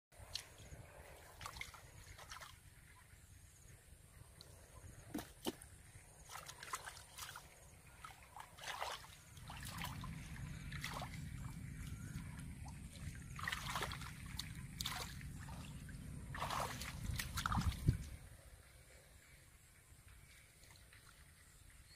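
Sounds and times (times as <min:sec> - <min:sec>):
hands splashing in muddy water: 0:06.3 - 0:12.2, 0:12.9 - 0:18.2
low steady rumble: 0:07.0 - 0:21.9.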